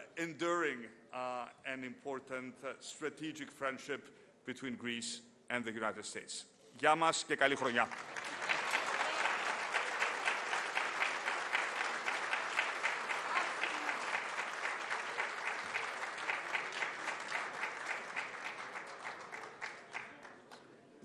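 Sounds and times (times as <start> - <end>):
audience clapping: 7.5 - 20.7.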